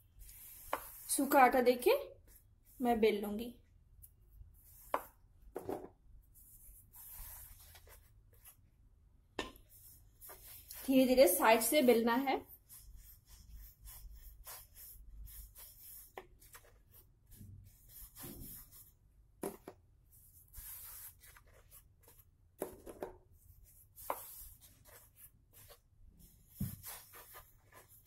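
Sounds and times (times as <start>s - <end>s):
rolling pin rubbing dough: 9.7s - 19.0s, 23.4s - 28.0s.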